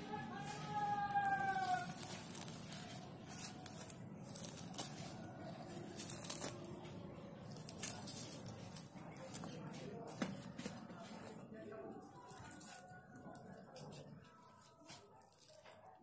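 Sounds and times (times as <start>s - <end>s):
fruit pulp tearing by hand: 0.5s - 11.4s.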